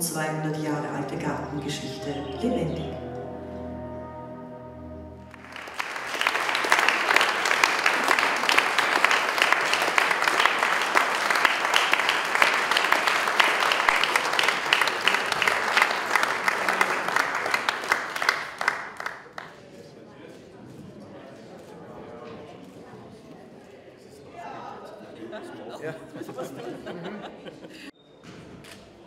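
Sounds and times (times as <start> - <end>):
music: 0.0 - 6.6
audience applause: 5.2 - 19.7.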